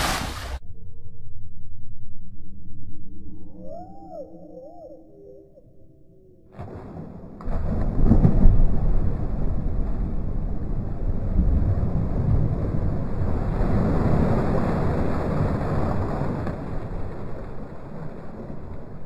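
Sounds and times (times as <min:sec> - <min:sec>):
water splashing and sloshing: 0:00.0 - 0:00.6, 0:06.6 - 0:19.0.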